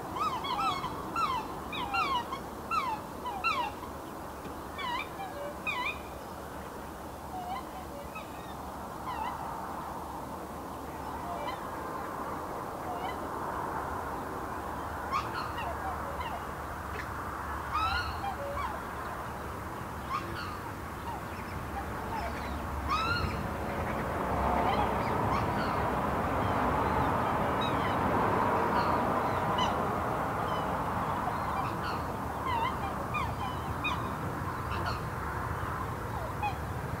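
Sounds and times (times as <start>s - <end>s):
swans honking: 0.0s - 6.2s, 7.3s - 9.5s, 12.8s - 13.4s, 15.0s - 37.0s
highway traffic rushing: 8.5s - 37.0s.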